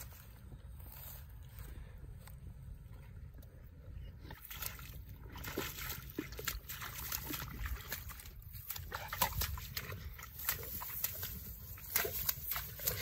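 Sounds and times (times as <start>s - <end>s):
dog splashing in puddle: 4.3s - 13.0s.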